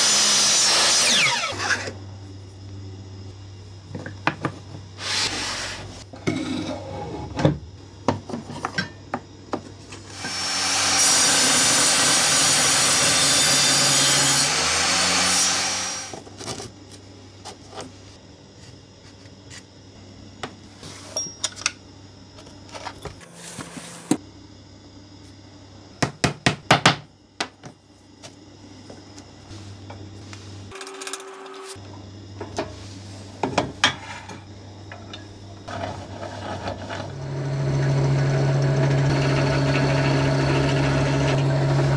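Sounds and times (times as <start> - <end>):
power saw cutting wood: 0.0 - 1.9, 10.1 - 16.1, 37.0 - 41.9.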